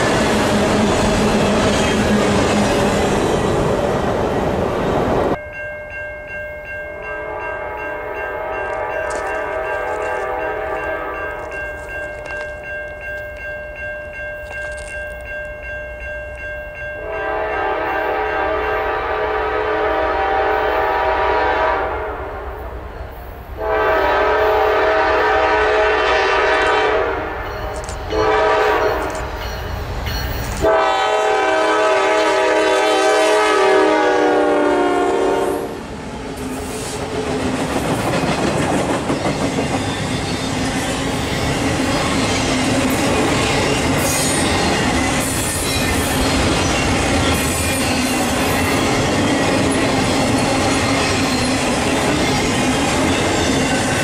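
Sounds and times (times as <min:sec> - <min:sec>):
locomotive air horn blowing: 0:07.2 - 0:11.4, 0:17.0 - 0:22.4, 0:23.6 - 0:27.5, 0:28.1 - 0:29.1, 0:30.6 - 0:35.8
train wheels clattering over rail joints: 0:36.9 - 0:54.0.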